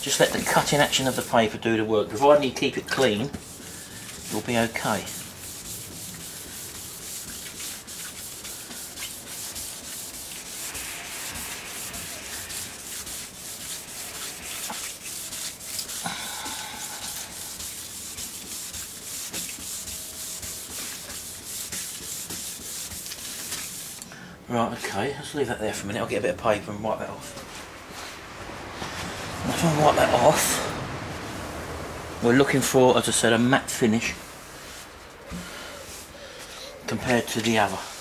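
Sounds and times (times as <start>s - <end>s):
sandpaper rubbing on car paint: 0.0s - 24.0s, 37.0s - 38.0s.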